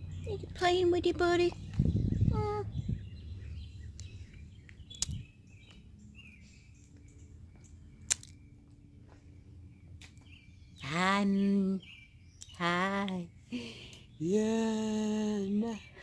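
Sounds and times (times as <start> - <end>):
low rumble: 0.0 - 10.7
sharp clicks: 4.7 - 5.8, 8.0 - 8.4.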